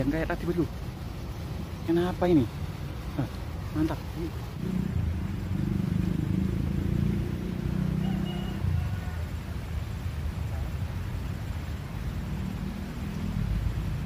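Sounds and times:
motor traffic rumble: 0.0 - 14.0.

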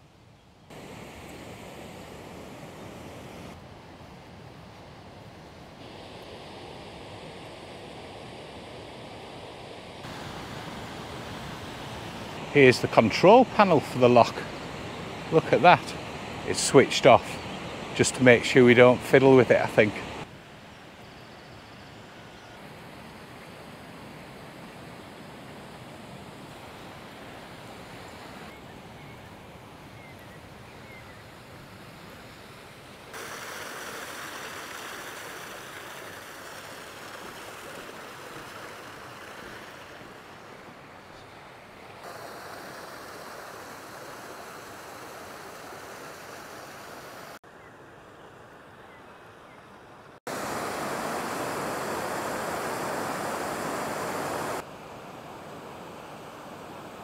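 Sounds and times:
flowing water rushing: 0.7 - 4.1, 5.8 - 20.4, 31.2 - 48.5, 49.9 - 57.0.

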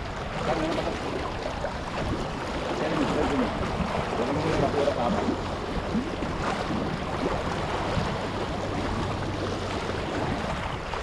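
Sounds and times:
small waves lapping on rocks: 0.0 - 11.0.

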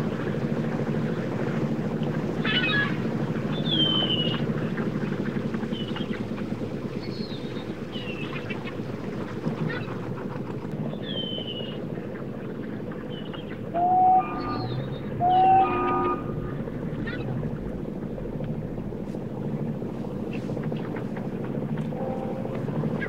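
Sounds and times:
boat engine running: 0.0 - 23.0
birds whistling: 3.5 - 4.5, 7.0 - 8.5, 10.9 - 11.8, 13.0 - 17.3
loud held tone: 13.7 - 16.8, 21.9 - 23.0.

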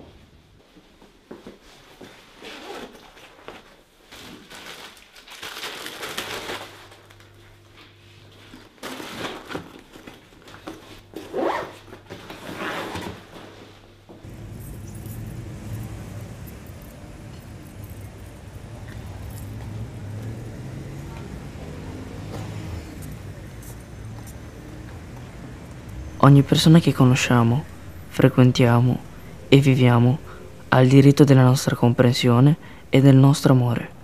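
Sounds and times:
zipper strokes: 11.2 - 13.1
street traffic rumble: 14.2 - 34.0.

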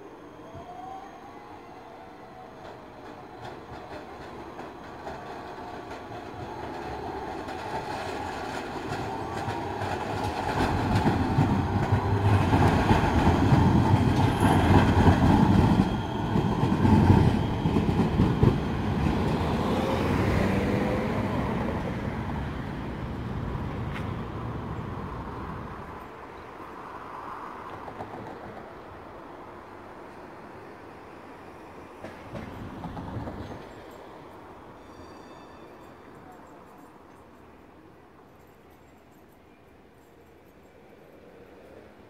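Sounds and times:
tram wheels clattering over rails: 2.6 - 24.2, 27.7 - 29.0, 31.9 - 35.2.

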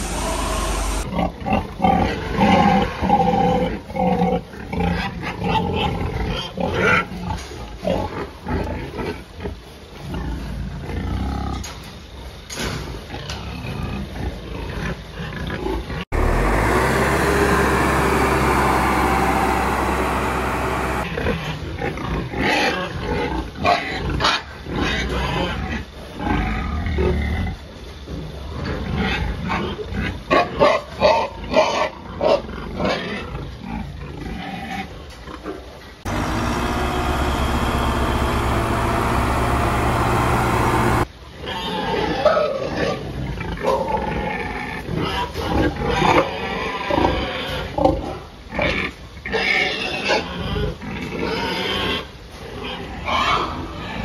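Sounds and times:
machine engine running: 0.0 - 1.1, 16.1 - 21.1, 36.0 - 41.1
pigs grunting: 0.0 - 11.6, 13.3 - 21.1.

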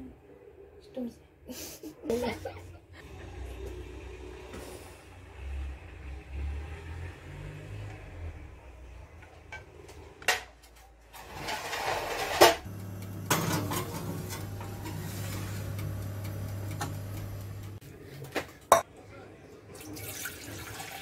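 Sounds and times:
utensils and glass dish clattering: 11.2 - 15.8
oven humming: 11.3 - 17.9.

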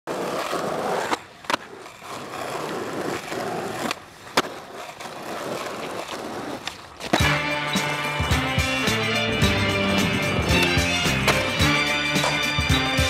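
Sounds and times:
skateboard cracking on landing: 0.1 - 7.3, 10.6 - 11.6
skateboard wheels rolling on asphalt: 0.1 - 13.0.

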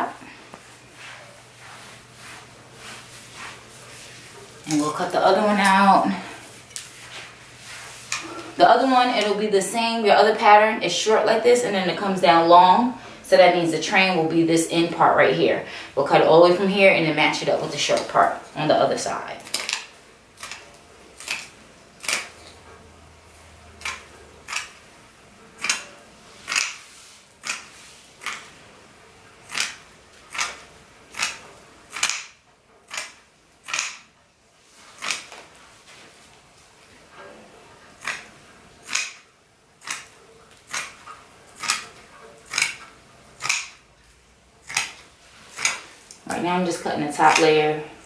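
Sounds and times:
scissors snipping fabric: 23.8 - 24.8, 25.6 - 28.5, 29.5 - 34.1, 35.0 - 35.4, 38.0 - 39.2, 39.8 - 41.0, 41.6 - 43.8, 44.6 - 45.9, 47.2 - 47.6.

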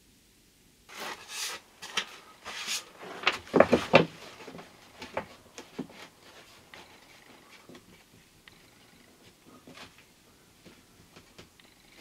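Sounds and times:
wood scraping: 0.9 - 8.2.

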